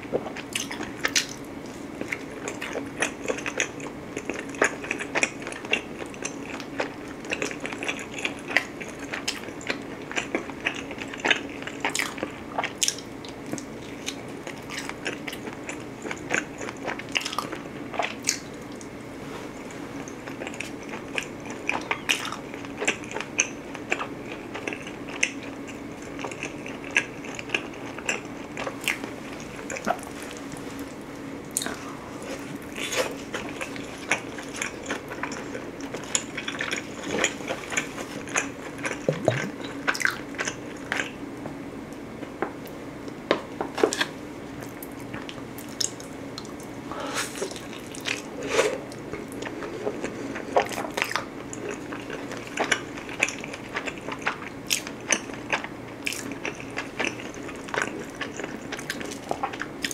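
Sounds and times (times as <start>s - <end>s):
chewing and crunching pizza: 0.0s - 41.3s, 41.9s - 59.9s
faint low hum: 0.0s - 43.6s
mouth clicks: 39.1s - 39.6s.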